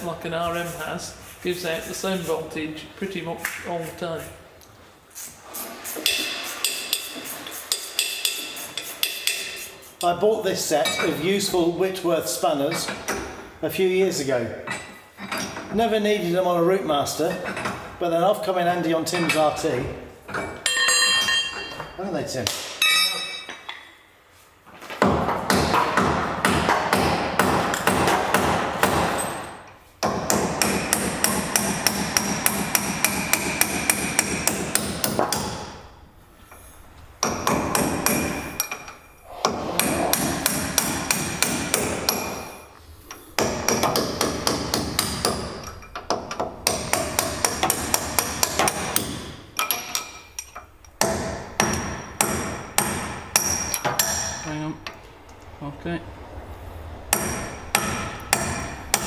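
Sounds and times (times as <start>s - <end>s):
air impact wrench hammering: 5.8s - 10.1s, 25.1s - 35.9s, 37.2s - 38.9s, 39.5s - 42.6s, 43.4s - 54.4s, 57.1s - 59.0s.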